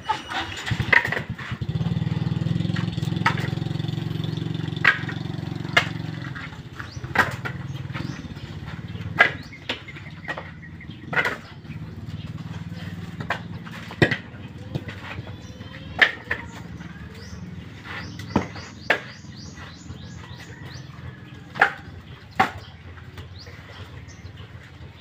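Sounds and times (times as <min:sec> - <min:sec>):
engine idling: 0:00.0 - 0:25.0
coconuts dropping into baskets: 0:04.7 - 0:11.9.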